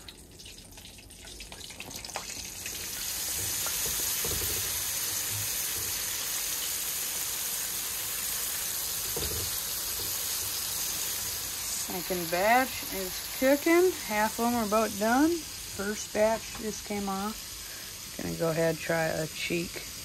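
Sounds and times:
fish frying in hot oil: 0.0s - 20.0s
tongs knocking against pan: 9.1s - 10.1s.

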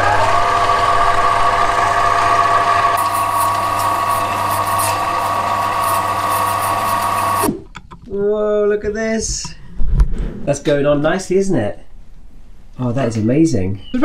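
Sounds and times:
lathe motor whine: 0.0s - 7.5s
tool cutting metal hiss: 3.0s - 7.5s.

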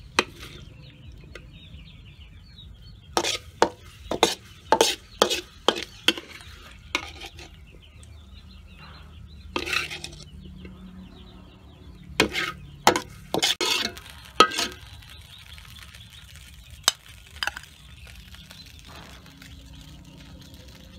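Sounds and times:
metal spatula scraping a wok: 0.0s - 0.8s, 3.1s - 7.7s, 9.4s - 10.4s, 12.2s - 15.2s
faint sizzling: 12.2s - 20.9s.

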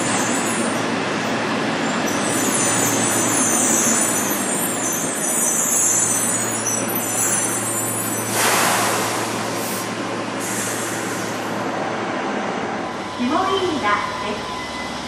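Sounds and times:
subway train braking: 0.0s - 15.0s.

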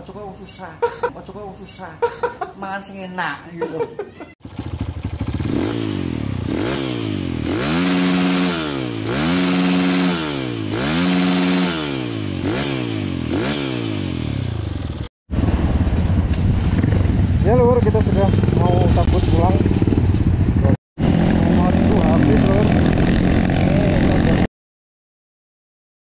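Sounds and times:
motorcycles being ridden: 4.3s - 24.5s
motorcycle engine revving: 4.4s - 24.5s.

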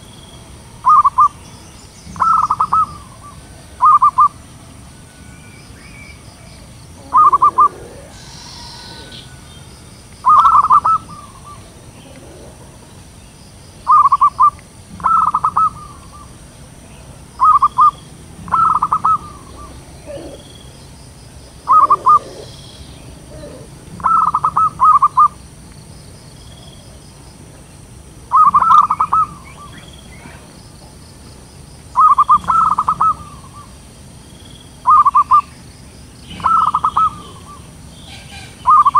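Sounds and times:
doves cooing in staccato trills: 2.1s - 5.0s, 6.6s - 13.2s, 13.8s - 25.4s, 28.3s - 31.0s, 32.0s - 33.8s, 34.9s - 35.5s, 36.2s - 38.9s.

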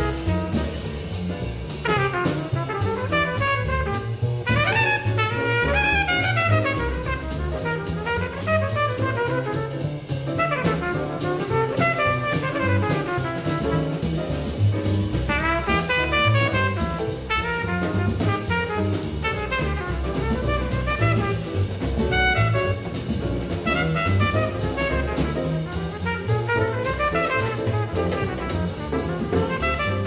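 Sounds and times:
drum kit playing: 0.0s - 30.0s
upright double bass walking: 0.0s - 30.0s
horn soloing in fast runs: 3.1s - 9.6s, 15.7s - 23.0s, 23.6s - 30.0s.

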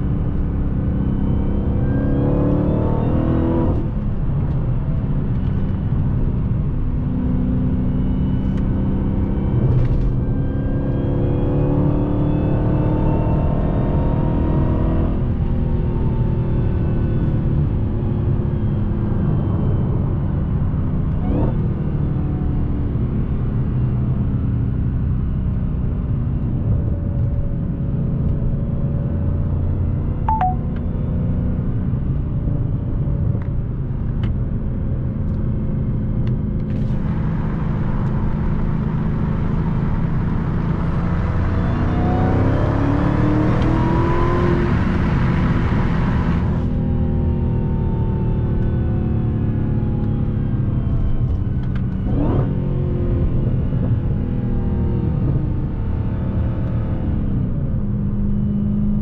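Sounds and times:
car engine rumbling: 0.0s - 59.0s
road noise: 25.3s - 59.0s.

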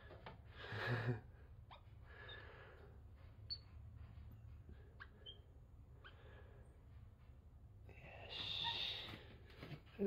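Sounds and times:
monkey peeping: 3.5s - 3.7s.

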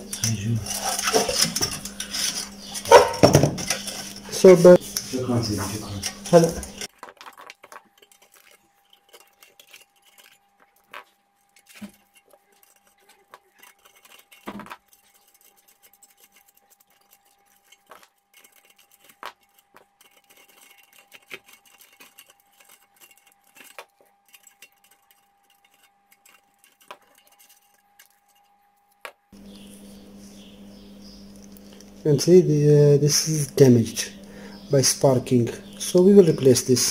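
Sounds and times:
pliers clicking and scraping: 5.9s - 29.1s
faint steady hum: 7.9s - 36.9s.

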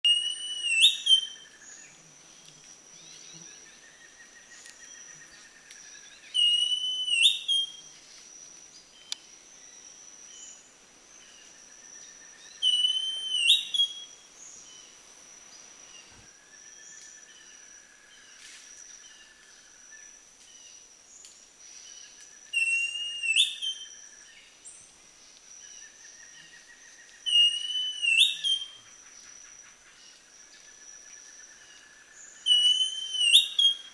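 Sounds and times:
bird whistled song: 0.0s - 1.9s, 6.2s - 7.8s, 12.0s - 14.2s, 22.4s - 24.3s, 25.8s - 28.9s, 32.2s - 33.9s.

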